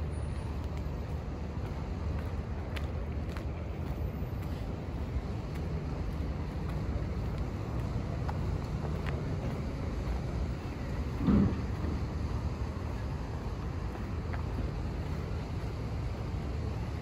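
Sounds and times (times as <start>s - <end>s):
distant city traffic rumble: 0.0s - 17.0s.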